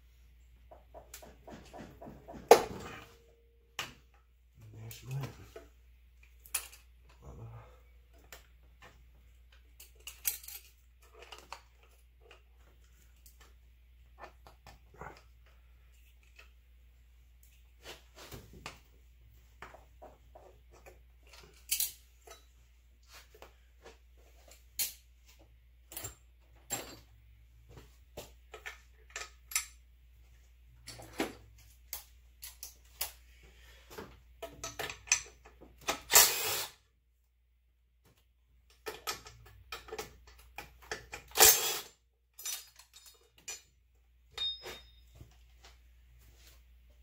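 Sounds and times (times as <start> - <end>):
metal tools clinking: 9.7 - 12.0, 38.8 - 45.3.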